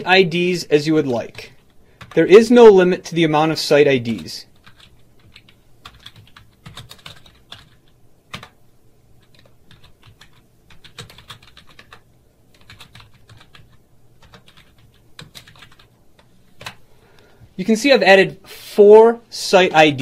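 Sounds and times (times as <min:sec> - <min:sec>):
computer keyboard typing: 0:01.1 - 0:02.4, 0:04.1 - 0:08.6, 0:09.2 - 0:16.8.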